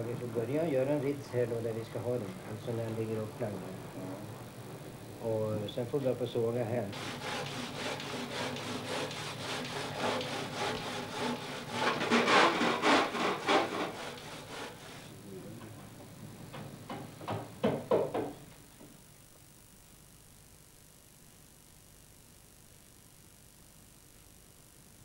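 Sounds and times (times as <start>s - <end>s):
hand saw strokes: 6.9s - 15.1s.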